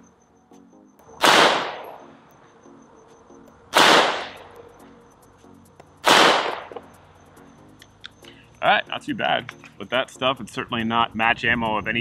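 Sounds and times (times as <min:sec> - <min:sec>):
pistol shots with short echo: 0:01.2 - 0:02.1, 0:03.8 - 0:04.4, 0:06.0 - 0:06.9.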